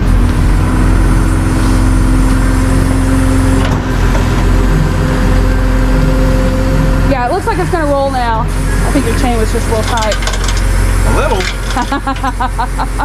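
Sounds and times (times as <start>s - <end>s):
steady hum: 0.0s - 13.0s
truck engine rumbling: 0.0s - 13.0s.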